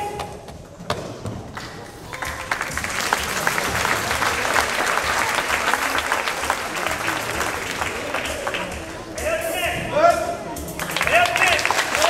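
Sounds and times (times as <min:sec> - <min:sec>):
audience applauding: 0:01.5 - 0:09.1, 0:10.8 - 0:12.0.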